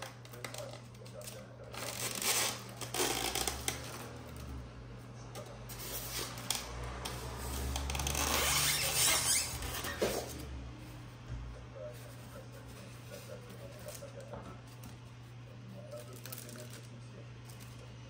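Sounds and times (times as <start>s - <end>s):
foam scraping and squeaking: 7.4s - 10.4s.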